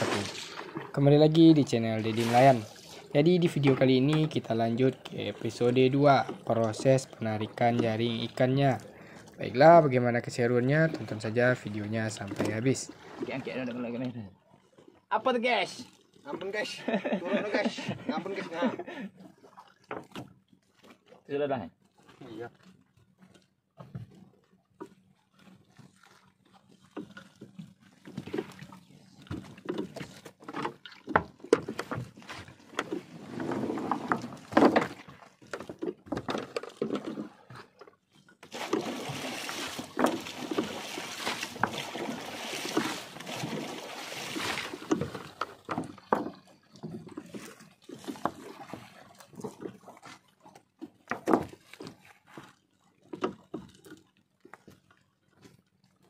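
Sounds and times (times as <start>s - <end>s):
wet net and water splashing: 0.0s - 4.2s, 24.7s - 55.9s
knocks on wooden hull: 51.0s - 51.6s.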